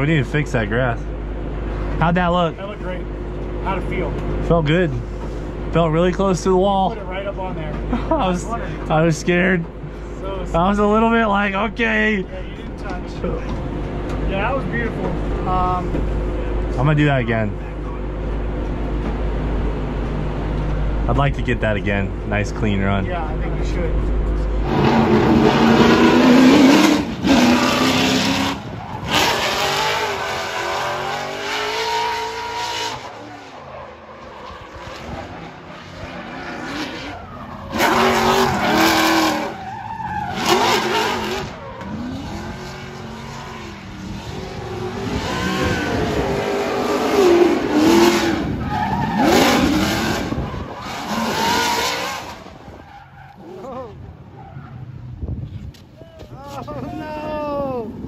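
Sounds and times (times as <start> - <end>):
car engine revving: 0.0 - 55.0
tyres squealing and skidding: 24.6 - 55.1.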